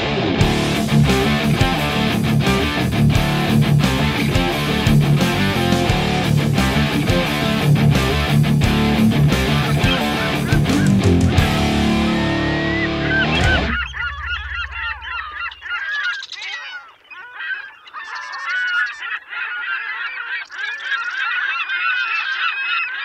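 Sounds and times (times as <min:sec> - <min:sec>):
electric guitar music: 0:00.0 - 0:15.8
flock of birds honking: 0:09.7 - 0:23.0.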